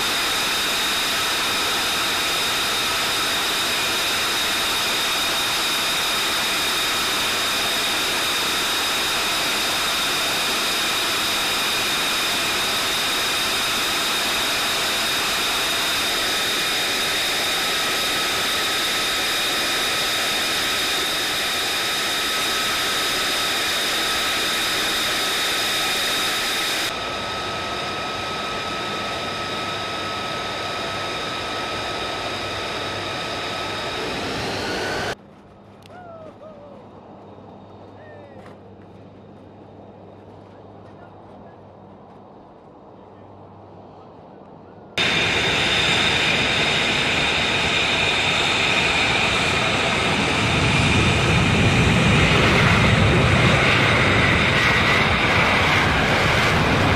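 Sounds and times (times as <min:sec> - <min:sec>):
jet engine turbine whine: 0:00.0 - 0:56.9.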